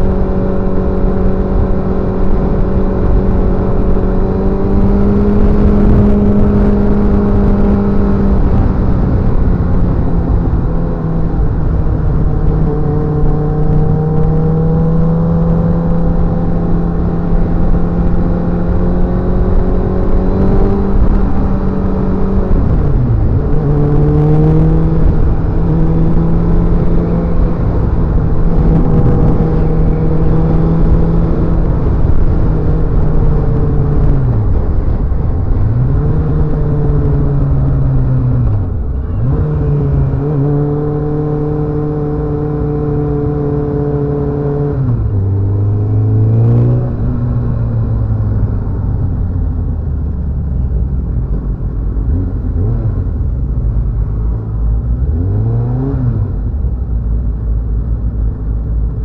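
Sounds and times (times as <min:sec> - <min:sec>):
wind and road noise: 0:00.0 - 0:59.0.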